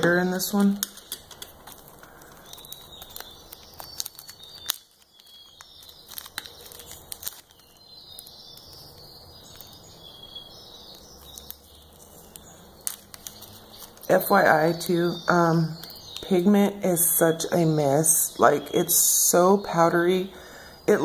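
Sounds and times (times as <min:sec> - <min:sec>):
plastic bag crinkling: 0:00.0 - 0:14.4.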